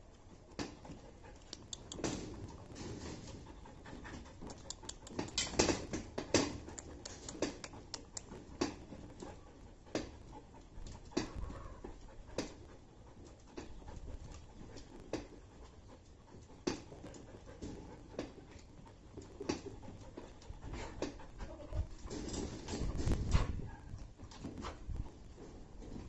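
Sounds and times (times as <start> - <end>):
dog claws clicking on plastic floor: 4.4 - 9.3.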